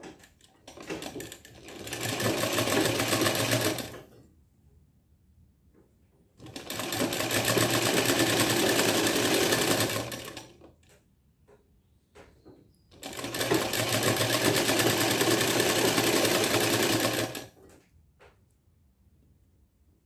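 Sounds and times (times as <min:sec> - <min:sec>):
sewing machine stitching: 0:00.0 - 0:04.2, 0:06.4 - 0:10.8, 0:12.9 - 0:17.8.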